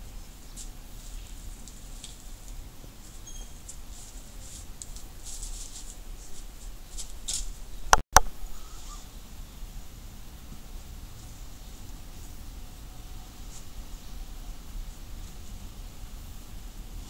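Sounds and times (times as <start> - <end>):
straw bag rustling: 0.6 - 7.8.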